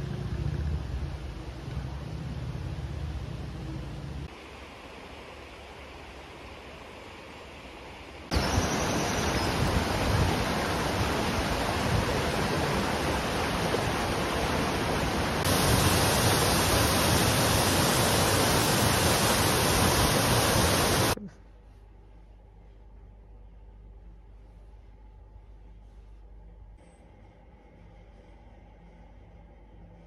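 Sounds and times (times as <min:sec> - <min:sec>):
fast-flowing water rushing: 0:08.3 - 0:21.2.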